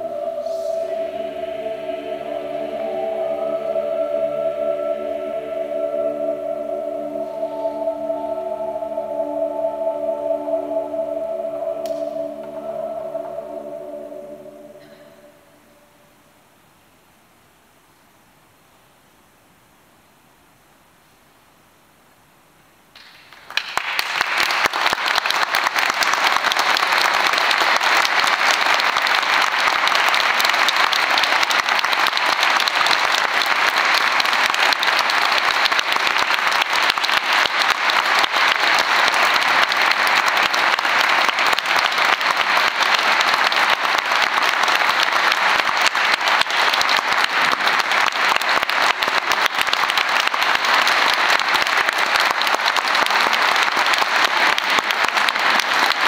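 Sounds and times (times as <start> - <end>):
audience applause: 23.3 - 56.0.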